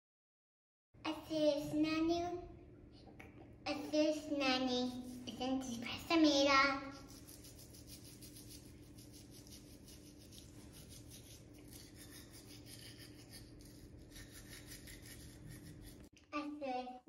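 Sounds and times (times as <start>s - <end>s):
toothbrush scrubbing teeth: 4.9s - 6.0s, 6.9s - 16.1s.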